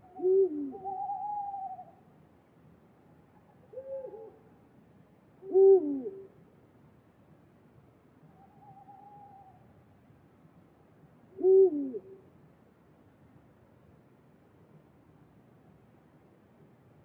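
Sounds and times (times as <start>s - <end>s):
owl hooting: 0.0s - 2.0s, 3.7s - 4.4s, 5.4s - 6.3s, 8.3s - 9.7s, 11.4s - 12.2s
wavering higher owl call: 0.0s - 2.1s, 3.3s - 4.6s, 5.4s - 6.3s, 8.3s - 9.8s, 11.4s - 12.2s.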